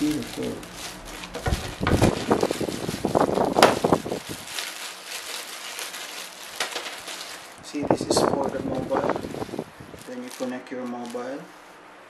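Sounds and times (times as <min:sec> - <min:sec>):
plastic bag crinkling: 0:00.0 - 0:11.5
low thumps: 0:01.0 - 0:04.4.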